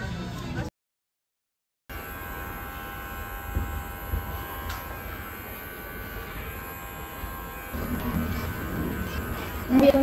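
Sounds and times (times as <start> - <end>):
electric clipper buzzing: 1.9 - 10.0.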